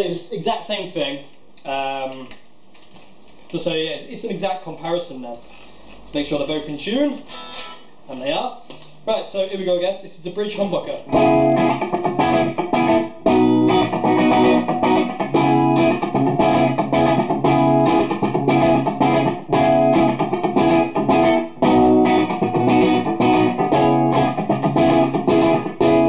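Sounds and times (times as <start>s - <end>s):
electric guitar riff: 11.1s - 26.0s.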